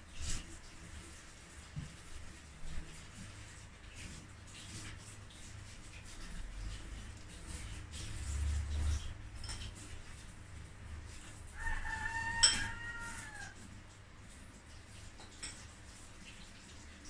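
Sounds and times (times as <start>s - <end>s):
rooster crowing: 11.5s - 13.6s.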